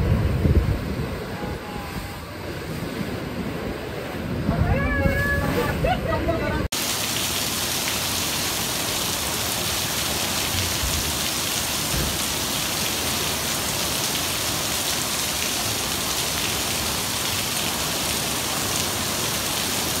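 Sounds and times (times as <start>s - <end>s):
heavy rain on pavement: 6.7s - 20.0s.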